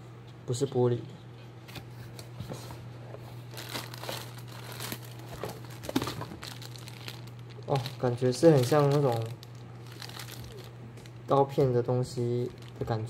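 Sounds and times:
plastic bag crinkling: 3.5s - 13.0s.

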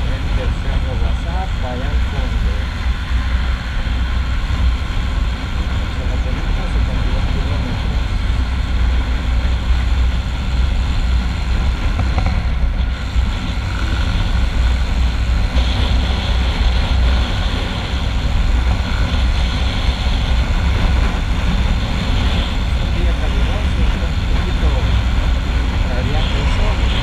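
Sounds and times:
motorcycle engine cruising: 0.0s - 27.0s
wind rushing over microphone: 0.0s - 27.0s.

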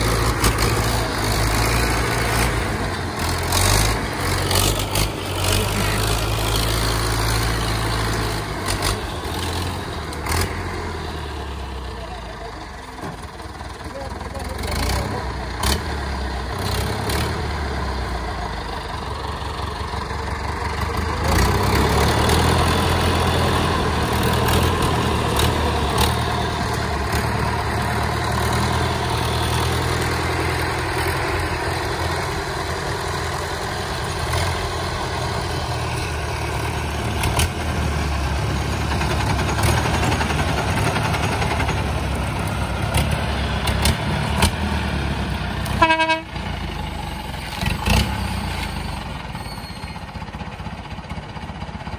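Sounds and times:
tractor diesel engine running: 0.0s - 51.9s.

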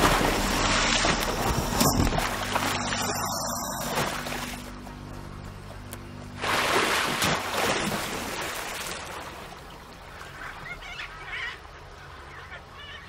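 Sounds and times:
heavy water splashing: 0.0s - 4.7s, 6.4s - 10.7s.

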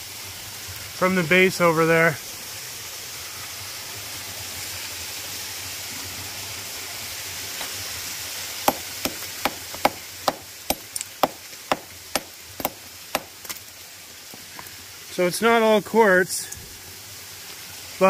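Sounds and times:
waterfall rushing: 7.2s - 14.2s
rock hammer striking rock: 8.6s - 13.6s.

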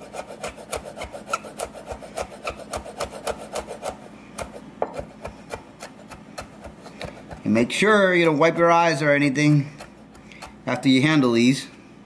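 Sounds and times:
knife chopping on wooden board: 0.0s - 7.5s, 9.7s - 10.9s.

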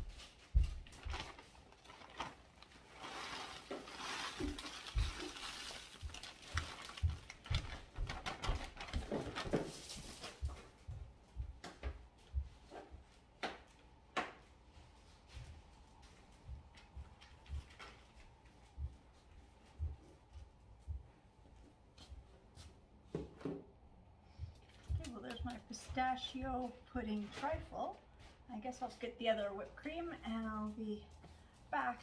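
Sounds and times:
rustling noise: 0.0s - 11.4s, 24.5s - 28.8s.

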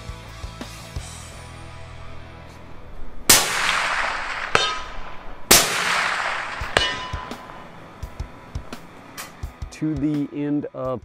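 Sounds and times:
suppressed rifle shots echoing: 1.9s - 9.4s
bullet ringing on steel target: 3.3s - 9.4s.

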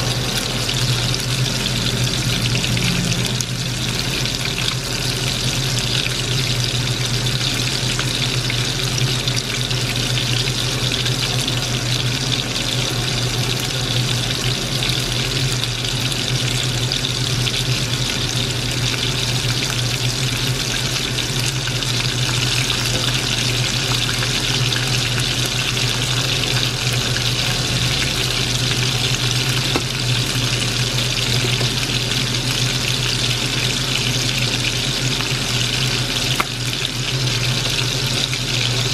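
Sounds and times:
low hum: 0.0s - 6.8s
deep-frying sizzle in oil: 0.0s - 38.9s.

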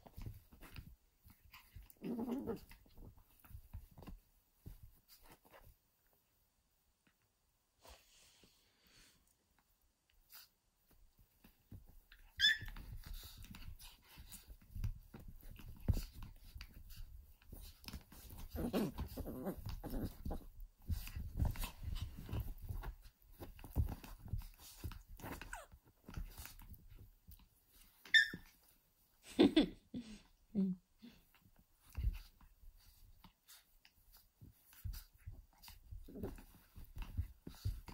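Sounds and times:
puppy play growls: 0.0s - 5.6s, 11.7s - 27.0s, 30.7s - 37.9s
puppy yelp: 12.2s - 12.9s, 28.1s - 28.5s.

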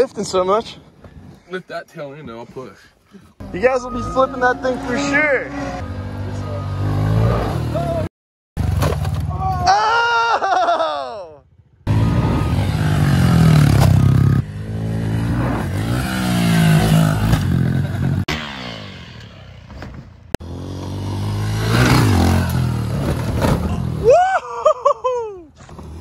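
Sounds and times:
dirt bike engine revving: 3.4s - 8.7s, 11.8s - 19.8s, 20.4s - 24.0s.

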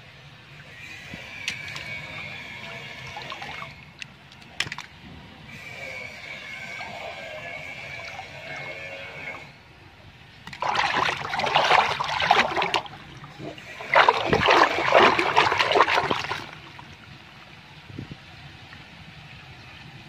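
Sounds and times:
water sloshing in toilet bowl: 1.4s - 4.9s, 10.5s - 17.0s.

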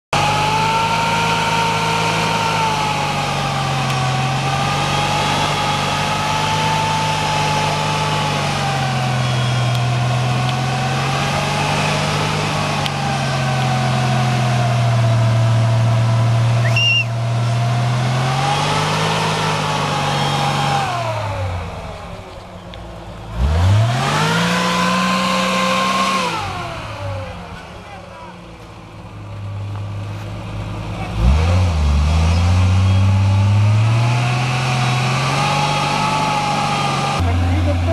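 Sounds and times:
off-road vehicle engine under load: 0.0s - 37.9s.

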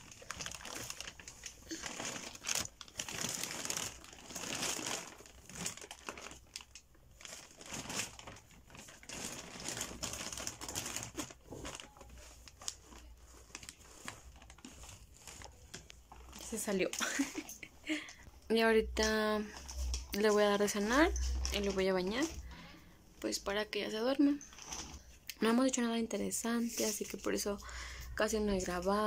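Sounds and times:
plastic bag crinkling: 0.0s - 18.1s, 18.9s - 22.7s, 24.2s - 25.1s.

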